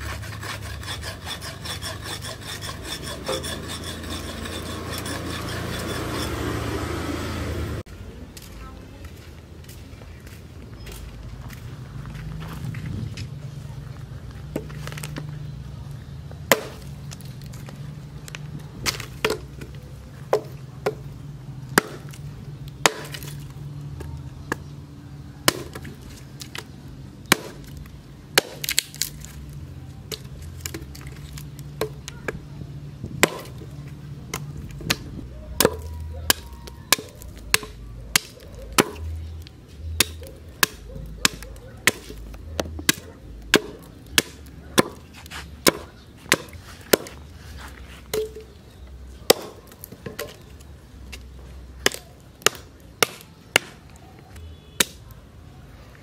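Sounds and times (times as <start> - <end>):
axe chopping wood: 14.5 - 15.3, 16.4 - 17.4, 18.3 - 24.7, 25.4 - 29.3, 30.1 - 32.4, 33.0 - 33.7, 34.3 - 39.2, 39.9 - 47.2, 48.1 - 48.6, 49.2 - 50.5, 51.1 - 53.8, 54.4 - 55.0.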